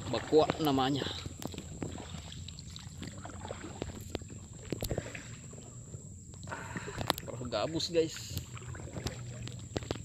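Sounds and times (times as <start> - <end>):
low steady rumble: 0.0 - 10.0
small knocks and rustles: 0.4 - 7.2, 8.9 - 10.0.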